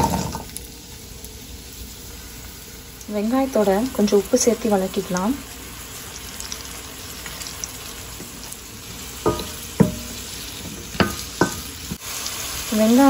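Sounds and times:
shallots sizzling in oil: 0:00.0 - 0:13.0
spatula knocking metal pan: 0:09.2 - 0:12.0.

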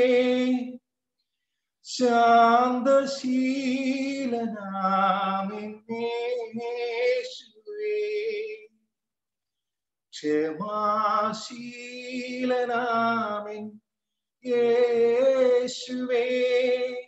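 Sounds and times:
man singing unaccompanied: 0:00.0 - 0:00.8, 0:01.8 - 0:08.8, 0:10.1 - 0:13.8, 0:14.4 - 0:17.0.

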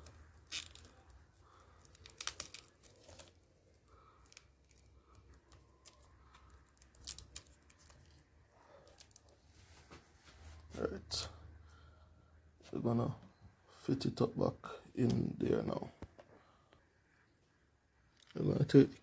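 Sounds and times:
tape crinkling and clicks: 0:00.0 - 0:09.4.

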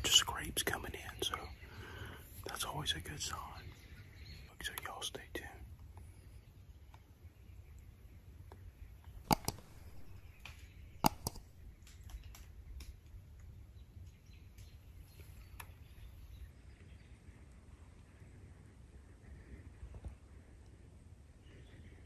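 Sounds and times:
low rumble of outdoor air: 0:00.0 - 0:22.0
mouse double click effect: 0:09.3 - 0:10.2, 0:11.0 - 0:11.5.

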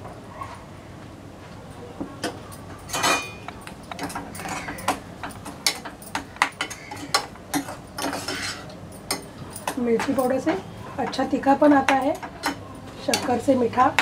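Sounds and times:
spoon clinking and scraping pan: 0:02.9 - 0:10.5.

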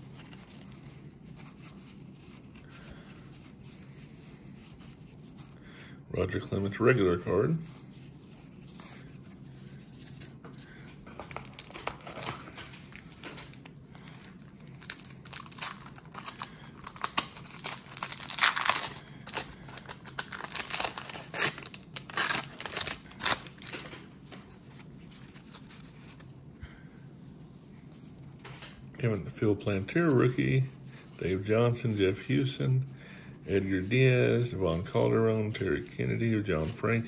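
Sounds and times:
wax paper wrapper tearing: 0:11.2 - 0:23.9.

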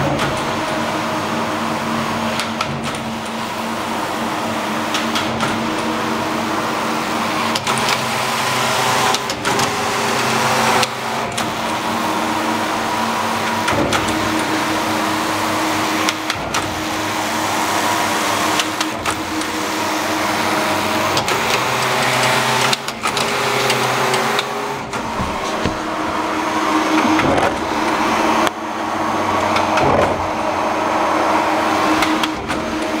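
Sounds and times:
knitting machine whirring and clattering: 0:07.4 - 0:28.5.

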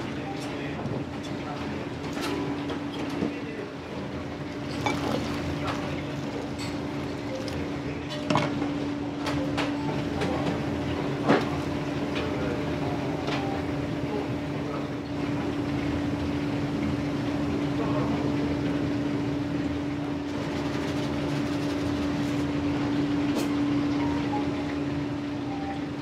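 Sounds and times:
utensils and dishes clinking: 0:04.6 - 0:08.7.

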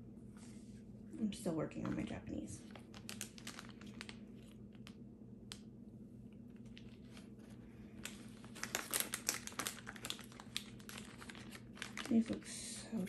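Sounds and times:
plastic wrappers crinkling: 0:01.9 - 0:05.6, 0:06.3 - 0:13.0.

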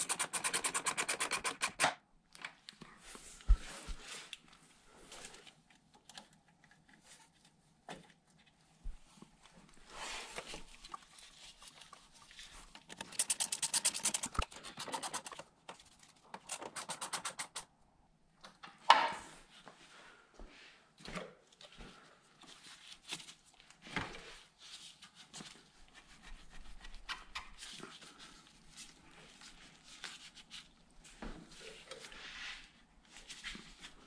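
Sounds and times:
tools scraping and rattling: 0:12.8 - 0:15.4.

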